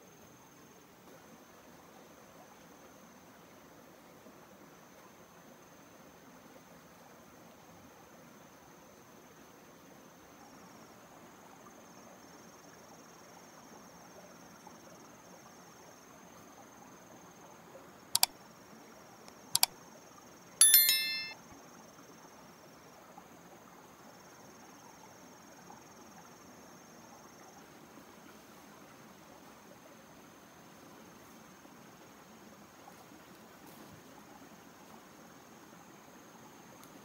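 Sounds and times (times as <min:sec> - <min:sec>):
faint high insect drone: 0:00.0 - 0:37.0
notification bell chime: 0:20.6 - 0:21.4.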